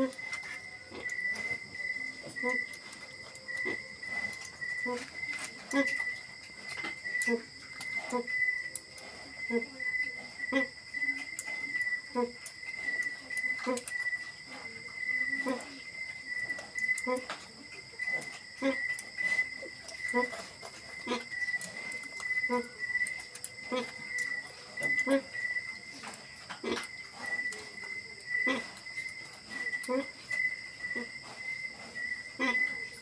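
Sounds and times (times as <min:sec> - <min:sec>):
sow grunting: 0:29.5 - 0:33.0.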